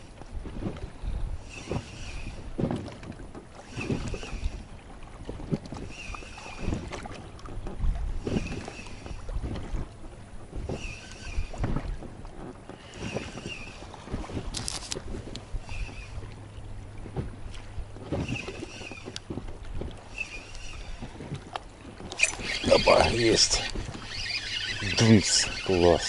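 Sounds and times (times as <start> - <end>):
water sloshing and splashing: 0.0 - 26.0
spinning reel cranking: 1.5 - 2.5, 3.7 - 4.7, 10.7 - 11.6, 12.8 - 13.9, 15.6 - 16.2, 18.2 - 19.2, 20.1 - 21.2, 22.1 - 26.0.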